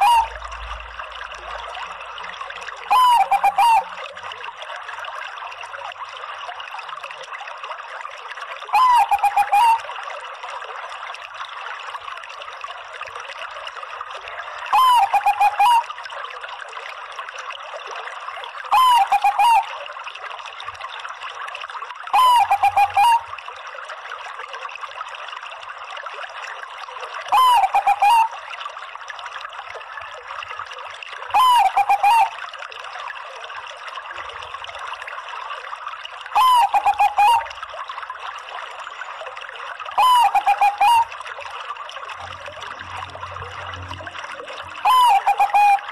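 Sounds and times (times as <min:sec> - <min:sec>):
dove cooing: 0:00.0 - 0:00.3, 0:02.9 - 0:03.9, 0:14.7 - 0:15.9, 0:18.7 - 0:19.7, 0:22.2 - 0:23.2, 0:27.3 - 0:28.3, 0:31.4 - 0:32.3, 0:36.4 - 0:37.5, 0:40.0 - 0:41.1, 0:44.8 - 0:45.9.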